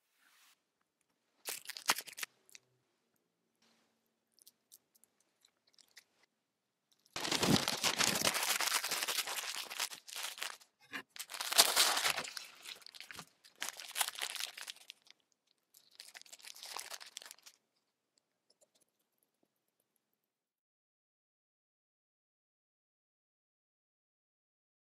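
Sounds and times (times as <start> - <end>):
paper wrapping crinkling: 1.4 - 2.6, 7.1 - 17.6.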